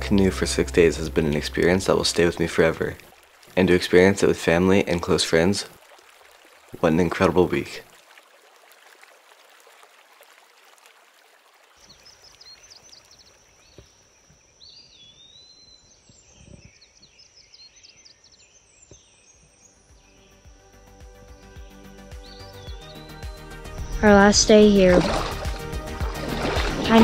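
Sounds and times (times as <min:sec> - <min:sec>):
birds chirping: 0:00.0 - 0:05.8, 0:11.8 - 0:27.0.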